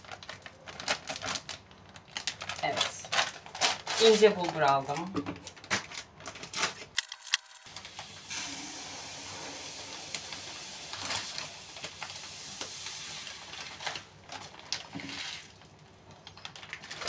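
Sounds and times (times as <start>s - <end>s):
plastic packet crinkling: 0.0s - 8.2s, 10.1s - 17.0s
grains pouring hiss: 7.8s - 13.8s.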